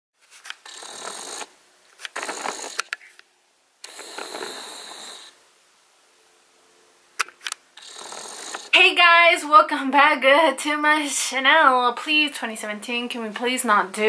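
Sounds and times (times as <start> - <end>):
camera handling rustling with clicks: 7.2 - 7.6.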